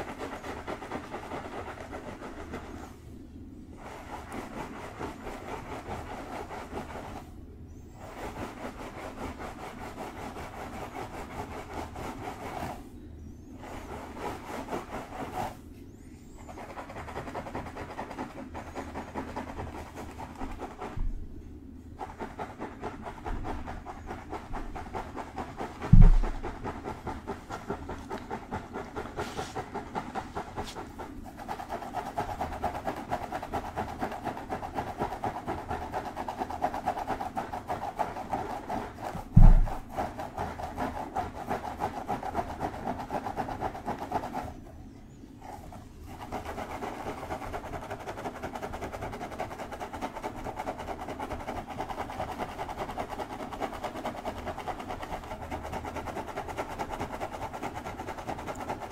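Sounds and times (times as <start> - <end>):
fingers scratching through hair: 0.0 - 3.0, 3.7 - 7.3, 7.9 - 12.9, 13.6 - 21.2, 21.9 - 44.7, 45.4 - 58.9
low thump: 25.9 - 26.6, 39.3 - 39.8.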